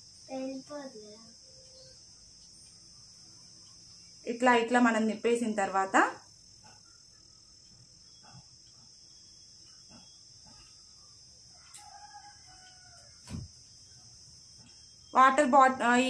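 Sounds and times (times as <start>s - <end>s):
high insect chirr: 0.0s - 16.0s
rooster crowing: 11.5s - 13.5s.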